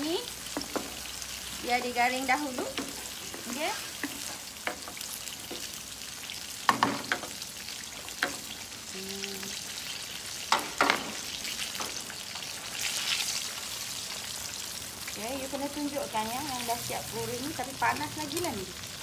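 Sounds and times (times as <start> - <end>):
oil sizzling in a wok: 0.0 - 19.0
wooden spatula knocking on pan: 0.5 - 1.0, 6.7 - 7.4.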